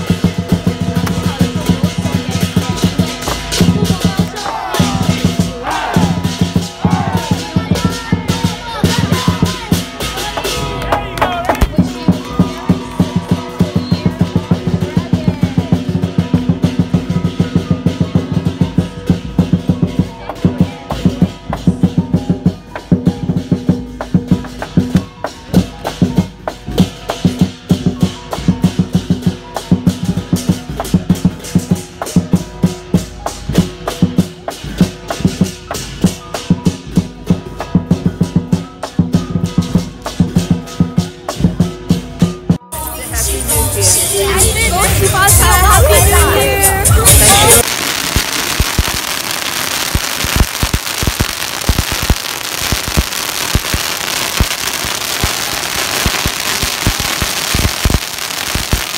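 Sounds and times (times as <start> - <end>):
cymbals crashing: 0.0 - 10.8, 46.8 - 58.9
big drum beating fast: 0.0 - 42.7.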